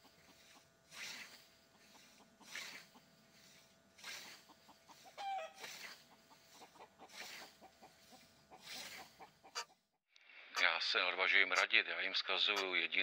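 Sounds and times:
faint hen clucking: 0.0 - 9.8.

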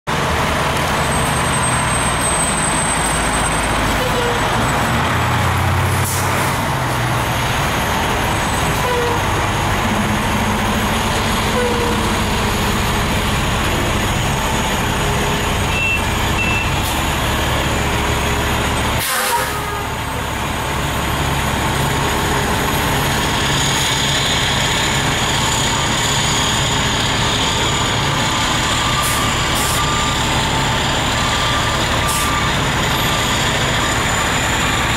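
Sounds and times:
heavy diesel engines running: 0.1 - 34.9
air brakes hissing: 19.0 - 19.8, 29.0 - 30.2.

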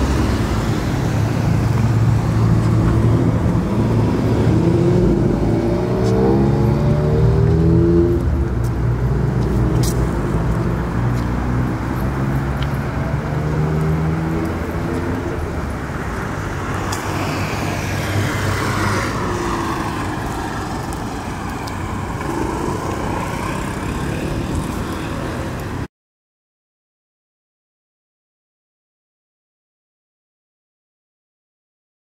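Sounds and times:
vehicle passing by: 0.0 - 25.6.

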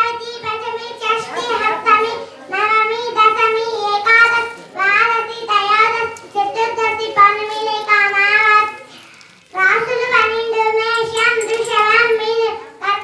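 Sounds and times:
girl singing into microphone: 0.0 - 13.0.

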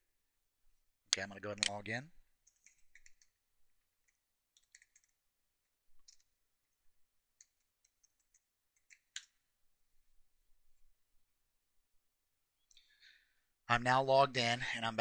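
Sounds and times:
keyboard typing: 2.4 - 5.3, 5.9 - 9.4.

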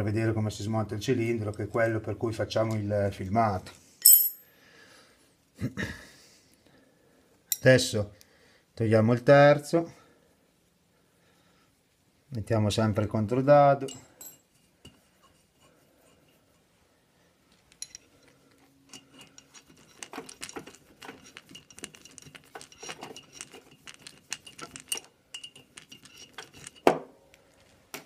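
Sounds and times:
spanners clinking against nuts: 4.0 - 4.5, 18.9 - 26.9.

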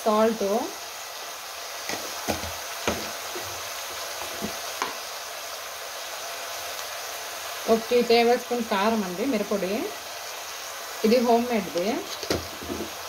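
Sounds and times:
vegetables sizzling in oil: 0.0 - 13.0
utensil knocks: 1.9 - 3.1.

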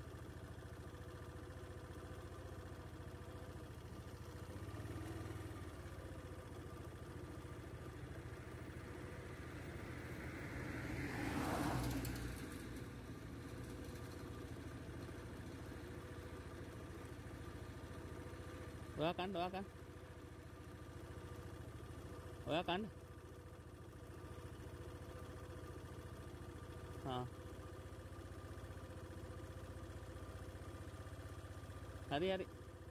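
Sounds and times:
vehicle engine idling: 0.0 - 32.9
vehicle passing: 8.9 - 12.9.

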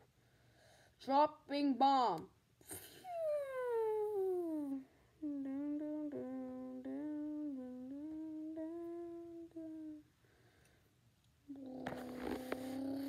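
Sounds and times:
child humming: 2.7 - 10.1, 11.5 - 13.0.

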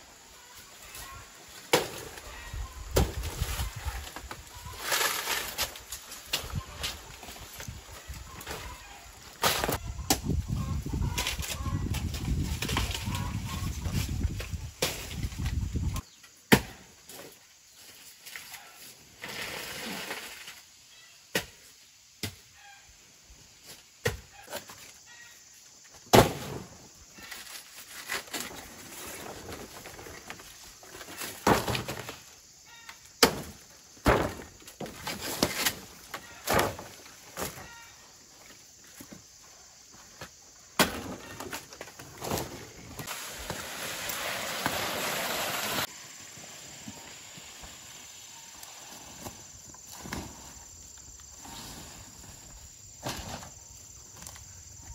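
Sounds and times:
banana leaves rustling: 0.6 - 9.8, 27.1 - 32.3, 40.8 - 53.5.

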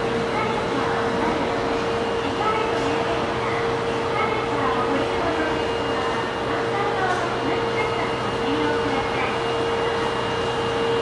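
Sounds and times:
faint voices: 0.0 - 10.0
steady machine hum: 0.0 - 11.0.

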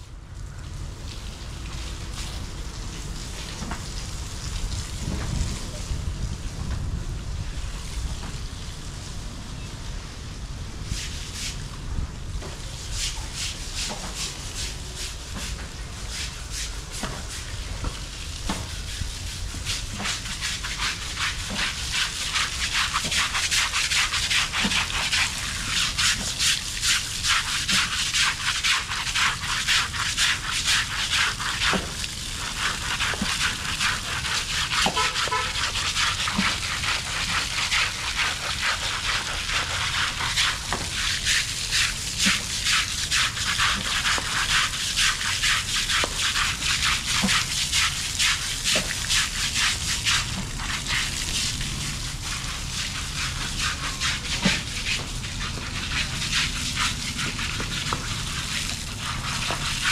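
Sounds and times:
rough scrubber scrubbing hide: 12.4 - 59.9.

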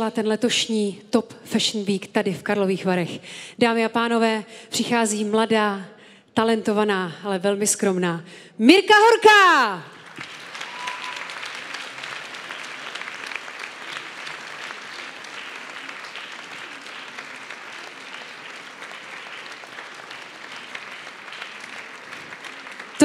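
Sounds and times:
hands clapping: 10.0 - 23.0.

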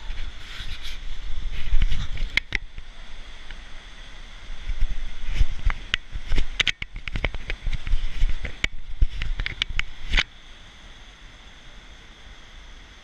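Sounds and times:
camera handling clicks and thumps: 5.6 - 10.3.

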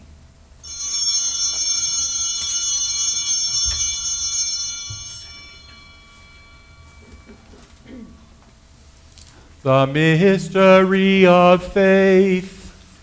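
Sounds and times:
altar bells ringing: 0.6 - 8.8.

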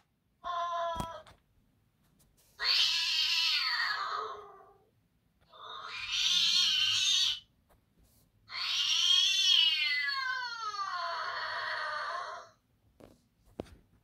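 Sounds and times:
cat meowing: 2.6 - 4.8, 5.5 - 7.4, 8.5 - 12.5.

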